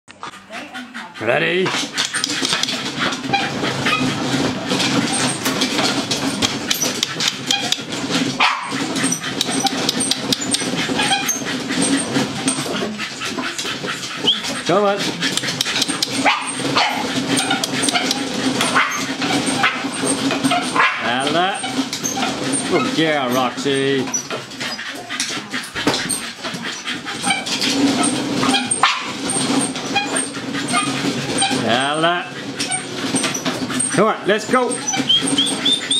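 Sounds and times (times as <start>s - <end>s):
paws pattering on treadmill: 0.1s - 35.9s
treadmill rumbling: 0.1s - 35.9s
dog whining and yipping: 8.4s - 14.6s, 15.3s - 22.7s, 34.8s - 35.9s.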